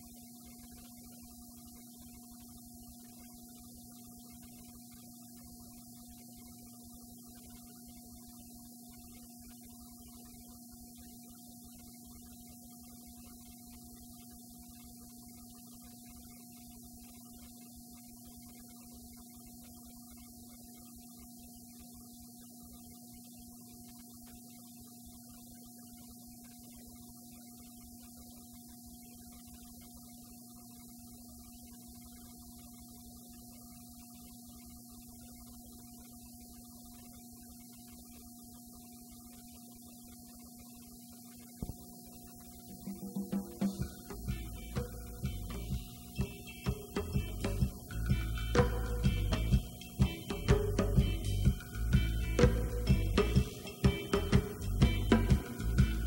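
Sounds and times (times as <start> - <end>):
steady electrical hum: 0.0 - 56.0
background hiss: 41.6 - 56.0.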